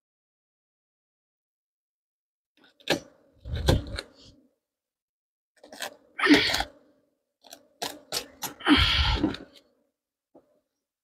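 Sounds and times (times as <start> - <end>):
plastic wrap crinkling and tearing: 5.6 - 6.7.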